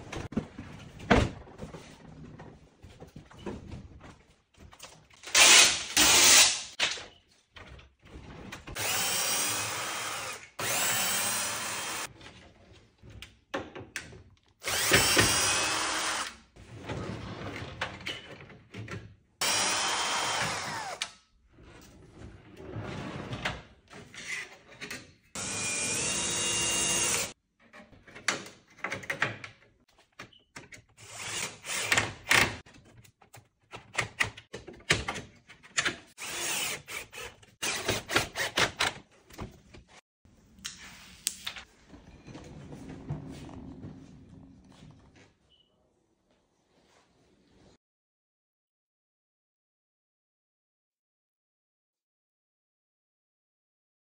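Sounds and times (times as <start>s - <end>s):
power drill driving screws: 5.3s - 6.7s, 8.8s - 12.1s, 14.6s - 16.4s, 19.4s - 21.1s, 25.4s - 27.4s, 31.0s - 32.5s, 36.2s - 38.8s.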